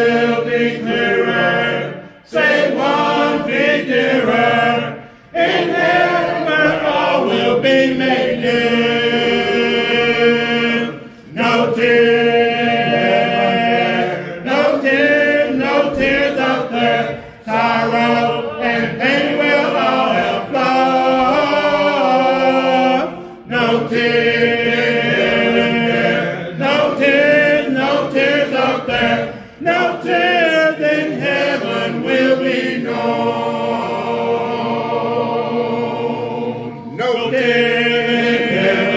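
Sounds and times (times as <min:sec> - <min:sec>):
congregation singing a hymn: 0:00.0 - 0:38.9.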